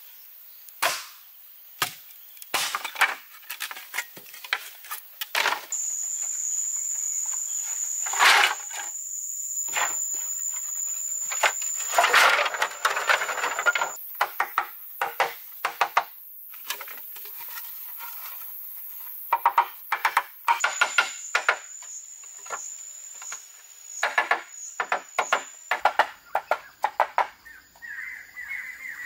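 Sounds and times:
bamboo and wood clattering: 0:01.8 - 0:05.8, 0:07.3 - 0:08.9, 0:09.7 - 0:18.5, 0:19.3 - 0:27.4
insect high whine: 0:05.7 - 0:14.2, 0:20.6 - 0:25.6
wood tapping on bamboo: 0:13.3 - 0:16.1, 0:24.0 - 0:27.4.

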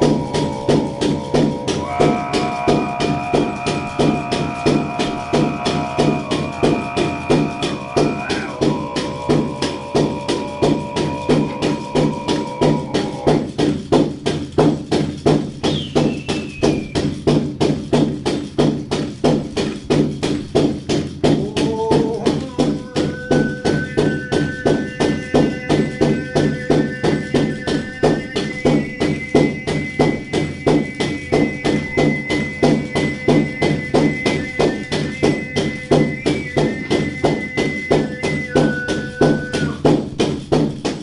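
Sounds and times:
sung drone with whistling overtone: 0:00.0 - 0:13.6, 0:15.6 - 0:17.4, 0:22.4 - 0:40.0
iron pendants jingling: 0:00.0 - 0:15.6
frame drum beaten steadily: 0:00.0 - 0:41.0.

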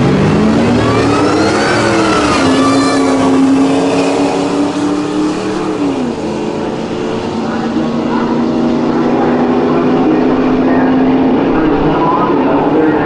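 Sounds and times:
truck engines at full throttle: 0:00.0 - 0:13.0.

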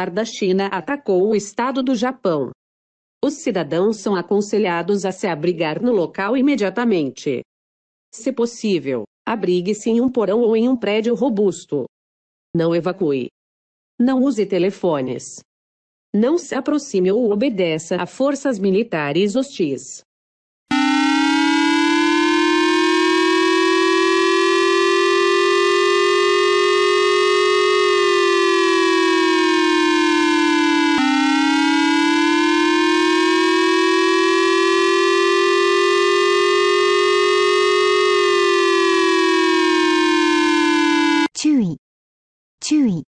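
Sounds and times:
rising and falling warning siren: 0:20.7 - 0:41.3.

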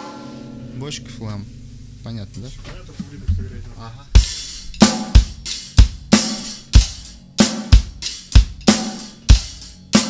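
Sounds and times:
cymbals ringing: 0:00.0 - 0:09.2
bass drum and snare beat: 0:02.3 - 0:10.0.

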